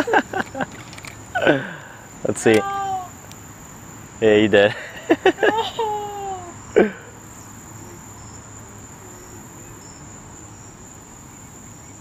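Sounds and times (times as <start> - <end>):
crickets trilling: 0.0 - 12.0
person exclaiming: 2.4 - 3.2, 5.4 - 7.0.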